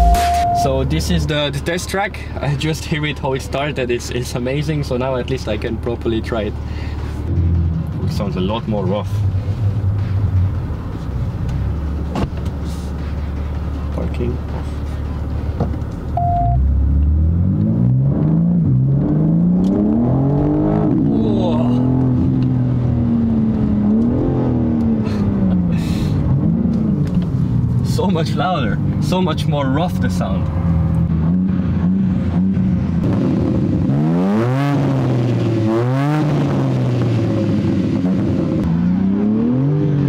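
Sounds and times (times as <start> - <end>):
car engine accelerating hard: 16.5 - 27.5, 29.9 - 40.0.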